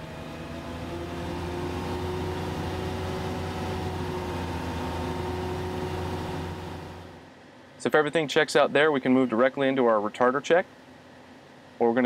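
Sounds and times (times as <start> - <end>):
diesel engine droning in cab: 0.0 - 7.8.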